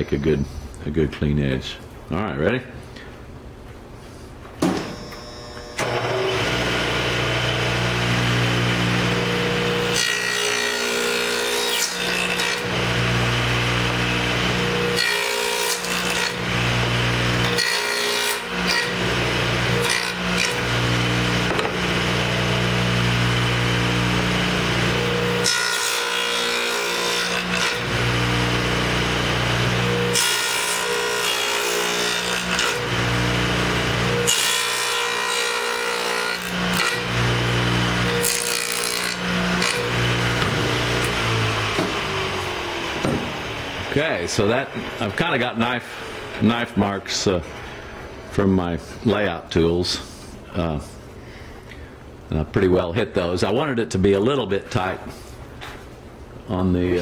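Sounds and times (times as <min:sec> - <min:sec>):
saw motor hum: 0:05.2 - 0:45.6
saw blade rasping through wood: 0:05.8 - 0:42.1.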